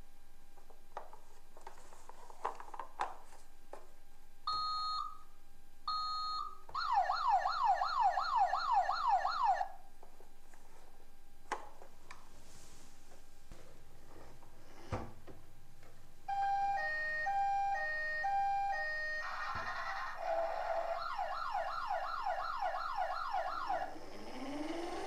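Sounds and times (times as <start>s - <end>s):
toy electronic siren: 6.8s - 9.7s, 16.3s - 25.0s.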